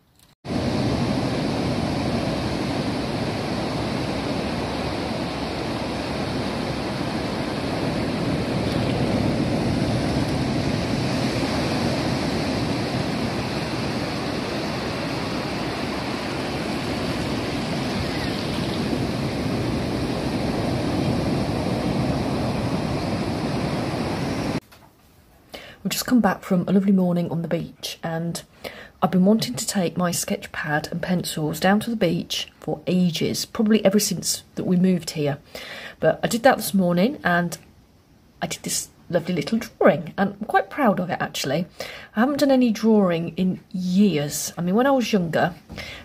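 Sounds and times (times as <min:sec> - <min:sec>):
waves breaking on beach: 0:00.5 - 0:24.6.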